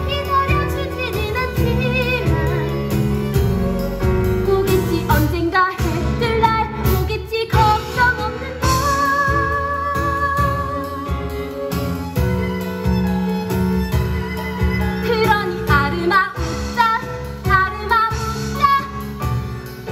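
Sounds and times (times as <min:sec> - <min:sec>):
woman singing: 0:00.0 - 0:03.0, 0:04.3 - 0:11.6, 0:15.0 - 0:19.9
instrumental accompaniment: 0:00.0 - 0:19.9.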